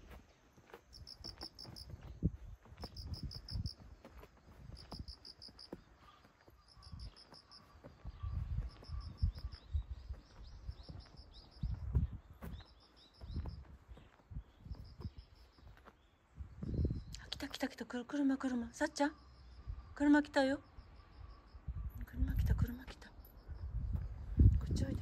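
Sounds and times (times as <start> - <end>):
cricket chirping: 0.0 - 15.9, 18.5 - 25.0.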